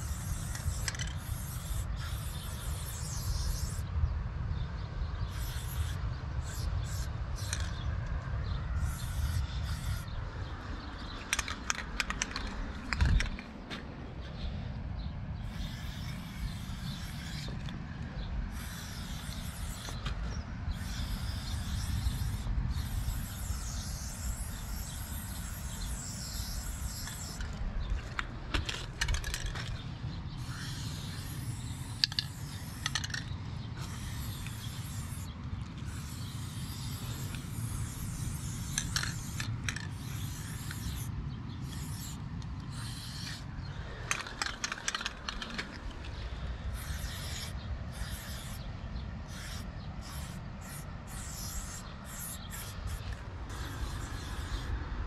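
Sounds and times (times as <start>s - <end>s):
spray paint can hissing: 0.0s - 3.9s, 5.2s - 10.2s, 11.0s - 13.4s, 15.4s - 54.8s
sharp clicks: 11.2s - 13.6s, 44.0s - 46.2s.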